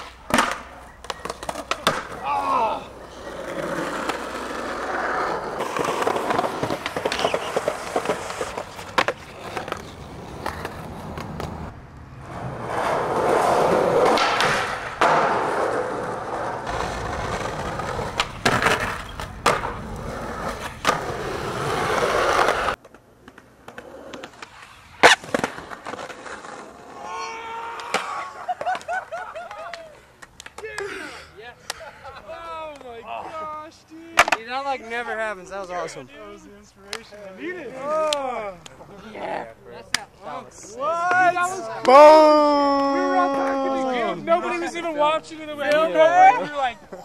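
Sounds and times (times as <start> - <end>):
skateboard tail cracking: 0.0 - 11.7, 12.3 - 30.8
skateboard wheels rolling on pavement: 0.0 - 30.8, 31.6 - 47.0.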